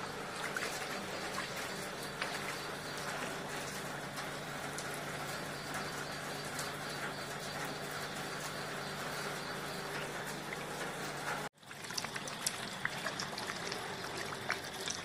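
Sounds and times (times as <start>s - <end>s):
steady rain hiss: 0.0s - 11.5s
raindrops pattering and dripping: 0.0s - 15.0s.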